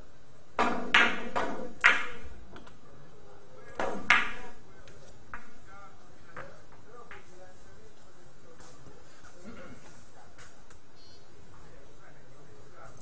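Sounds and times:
billiard balls clicking: 0.6s - 2.8s, 3.7s - 4.4s.

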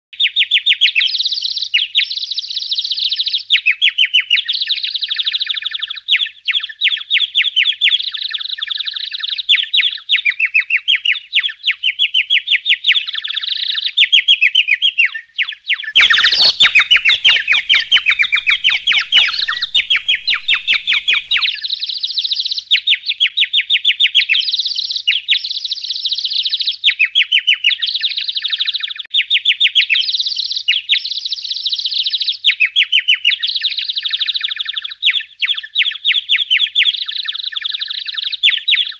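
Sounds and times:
songbirds chirping and trilling: 15.0s - 33.2s.

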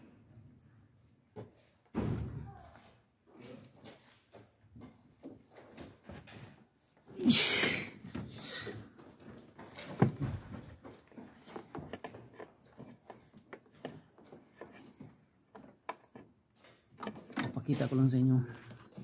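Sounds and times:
handling parts clicks and taps: 9.0s - 19.0s.

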